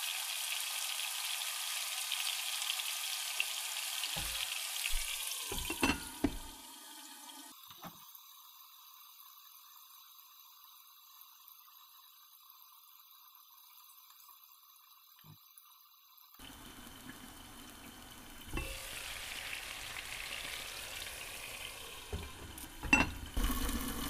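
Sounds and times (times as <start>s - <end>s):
chicken sizzling in frying pan: 0.0s - 7.6s, 16.4s - 24.0s
glass pan lid knocking: 5.5s - 6.5s, 22.1s - 23.4s.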